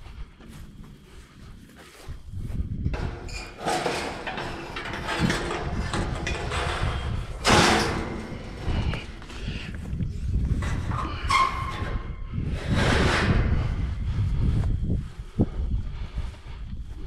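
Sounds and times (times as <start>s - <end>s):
metal gate rattling and scraping: 2.9s - 13.9s.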